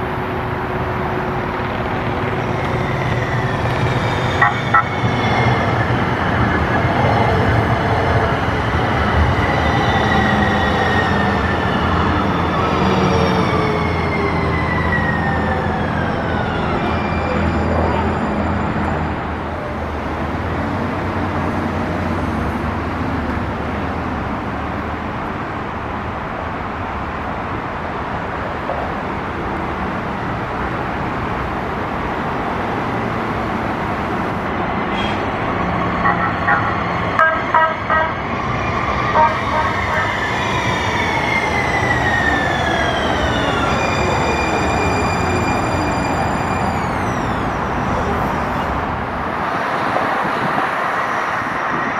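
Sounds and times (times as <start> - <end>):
train rumble: 0.0 - 51.9.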